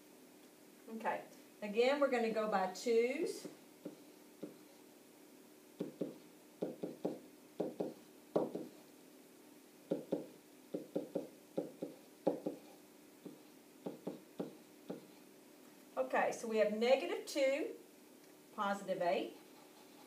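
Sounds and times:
faint steady hum: 0:00.0 - 0:20.0
stylus knocking on whiteboard: 0:05.8 - 0:08.8, 0:09.9 - 0:15.1.

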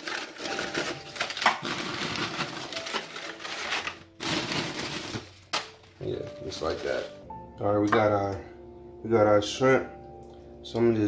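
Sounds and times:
chips clattering onto tray: 0:00.0 - 0:05.8.

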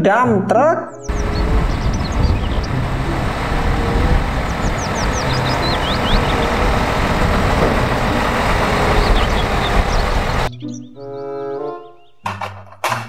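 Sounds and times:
truck diesel engine running: 0:01.1 - 0:10.5.

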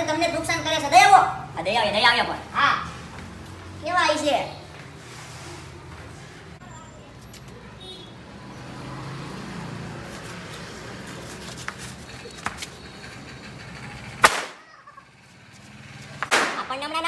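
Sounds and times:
firecracker bang: 0:14.2 - 0:14.6, 0:16.2 - 0:16.7.

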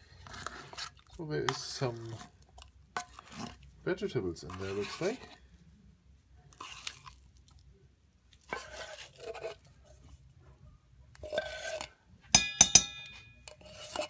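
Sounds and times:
fork scraping dog food from can: 0:00.2 - 0:02.4, 0:04.4 - 0:05.4, 0:06.5 - 0:07.2, 0:08.5 - 0:09.7, 0:11.2 - 0:12.0, 0:13.5 - 0:14.0
fork clinking on metal bowl: 0:11.2 - 0:14.0.

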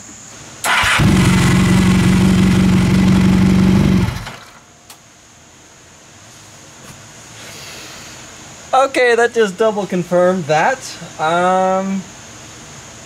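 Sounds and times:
motorcycle engine running: 0:00.7 - 0:04.5.

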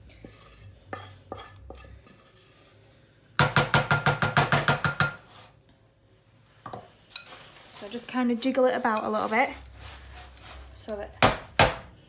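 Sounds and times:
wooden spoon scraping saucepan: 0:00.0 - 0:03.4, 0:06.8 - 0:11.2.

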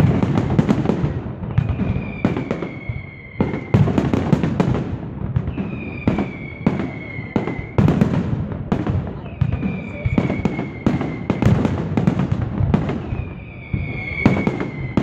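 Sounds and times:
fireworks bangs: 0:00.0 - 0:15.0
fireworks crackle: 0:00.0 - 0:15.0
high falling whistles: 0:01.5 - 0:03.9, 0:05.5 - 0:07.8, 0:09.3 - 0:11.4, 0:13.0 - 0:15.0.

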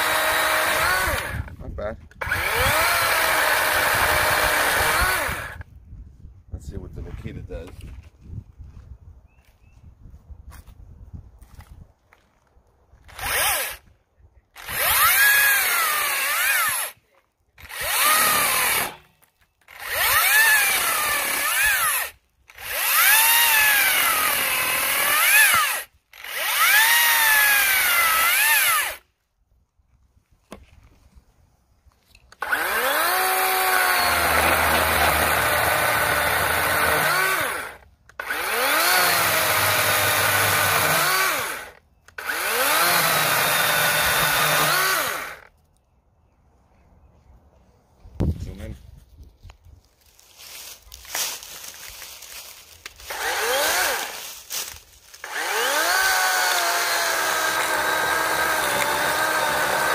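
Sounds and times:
cordless chainsaw cutting log: 0:00.0 - 0:01.6, 0:02.2 - 0:05.6, 0:13.0 - 0:13.8, 0:14.6 - 0:17.0, 0:17.6 - 0:29.0, 0:32.4 - 0:45.5, 0:53.0 - 0:54.3, 0:55.1 - 0:59.9.

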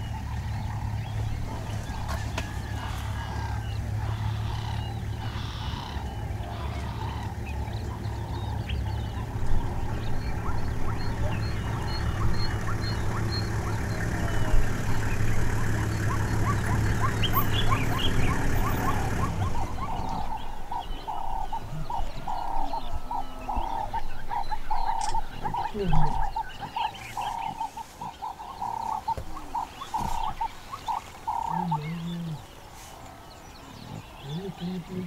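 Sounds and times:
low engine hum: 0:00.0 - 0:35.0
small animal calling: 0:15.8 - 0:32.6.

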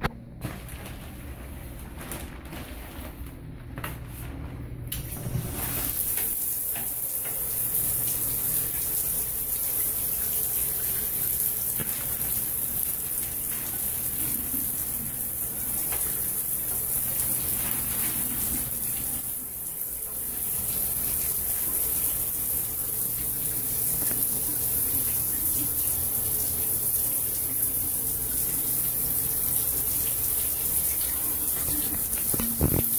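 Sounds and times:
shower water spraying: 0:04.9 - 0:32.9.

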